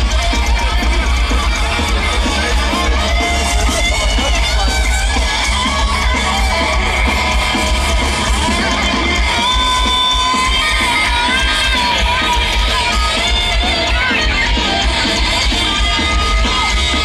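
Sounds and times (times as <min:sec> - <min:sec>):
electric guitar held bent notes: 0:00.0 - 0:17.0
heavy metal band playing live: 0:00.0 - 0:17.0.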